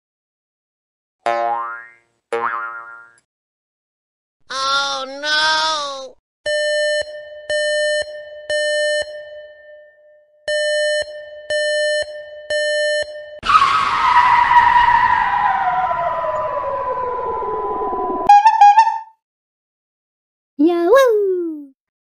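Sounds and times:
hissing skid effect falling in pitch: 13.4 - 19.0.

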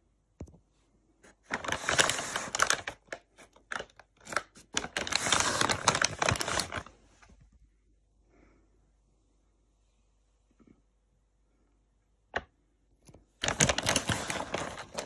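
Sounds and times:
paper wrapper crinkling: 1.3 - 7.0, 13.3 - 15.0.

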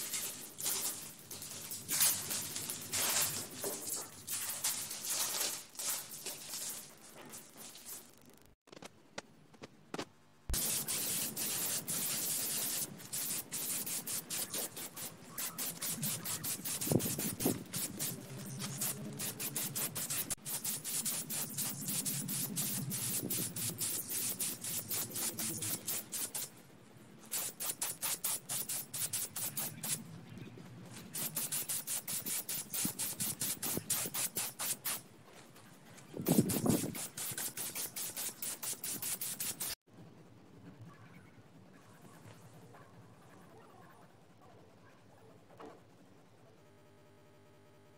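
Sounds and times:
paint spray gun hissing: 10.5 - 26.5, 27.3 - 30.0, 31.2 - 35.0, 36.2 - 39.8.

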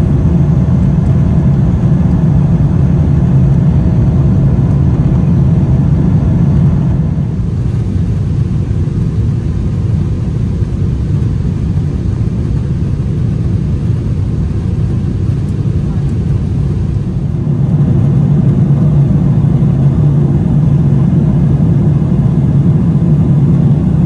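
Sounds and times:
jet engine cabin rumble: 0.0 - 24.0
airflow past fuselage: 14.6 - 24.0.

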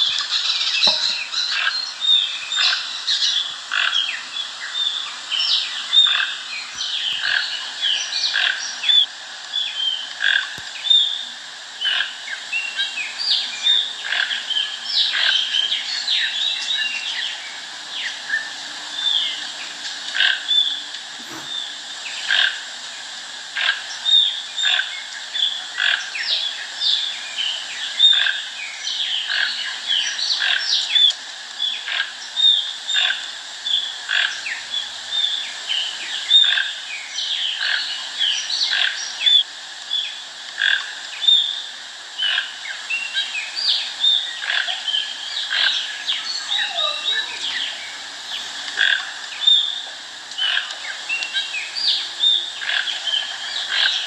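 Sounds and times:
toucan croaking: 0.8 - 1.8, 18.9 - 21.7, 44.4 - 54.0.

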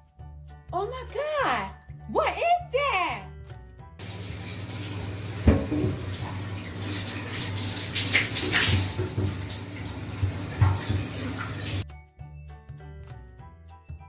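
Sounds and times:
kitten paws scrabbling on bathtub: 7.4 - 9.6.

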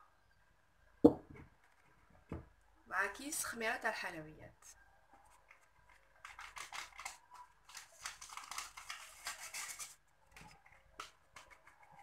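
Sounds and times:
plastic sieve shaking powder: 5.4 - 12.0.

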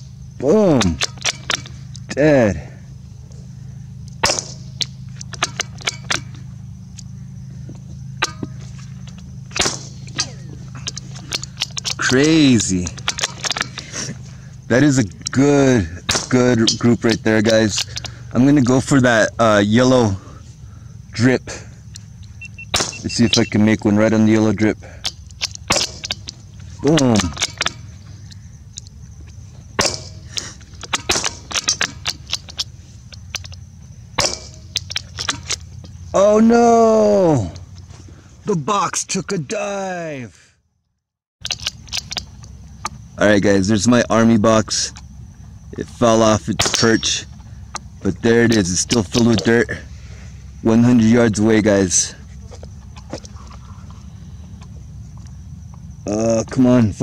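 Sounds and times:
steady low hum: 0.0 - 57.0
sharp crack: 0.7 - 2.1, 4.0 - 7.1, 8.2 - 14.2, 16.0 - 18.2, 22.7 - 23.4, 25.0 - 28.9, 29.7 - 36.0
small metallic clicks: 0.8 - 2.2, 4.0 - 7.1, 7.7 - 14.2, 21.9 - 23.5, 25.0 - 36.0.

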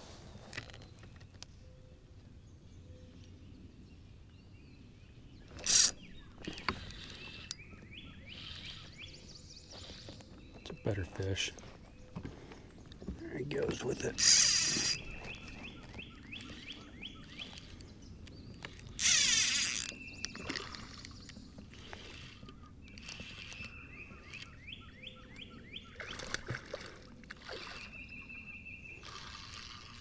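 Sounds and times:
spinning reel ticking: 5.6 - 5.9, 14.2 - 15.0, 18.9 - 19.9.

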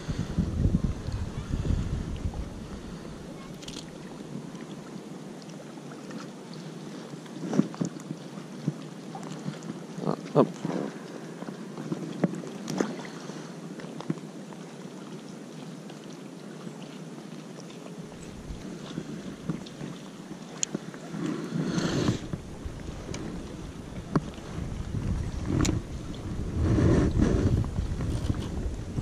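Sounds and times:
wind gusting on microphone: 0.0 - 4.0, 21.0 - 29.0
water lapping and splashing: 0.0 - 29.0.

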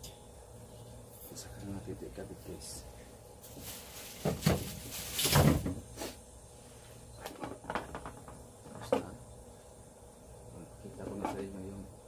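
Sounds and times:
packaging rustling: 3.4 - 5.6.

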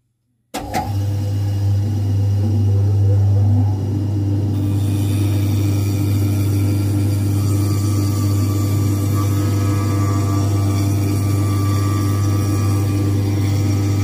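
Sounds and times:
shoe repair machine humming: 0.6 - 14.0
groover cutting leather sole: 4.6 - 14.0.

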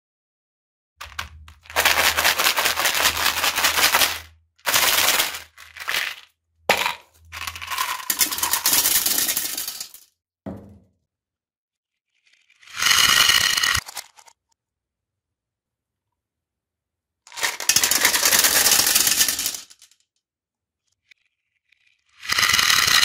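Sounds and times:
candies clattering into toilet bowl: 1.0 - 10.1, 17.3 - 19.9.

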